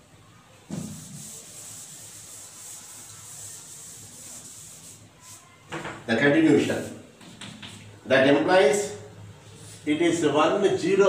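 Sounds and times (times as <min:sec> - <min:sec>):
eraser rubbing on chalkboard: 0:00.7 - 0:05.6.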